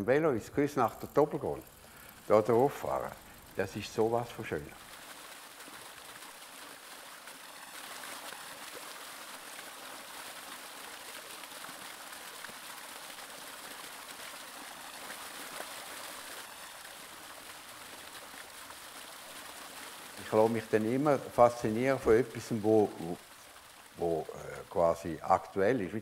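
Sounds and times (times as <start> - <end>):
stream water falling over rocks: 0.8 - 26.0.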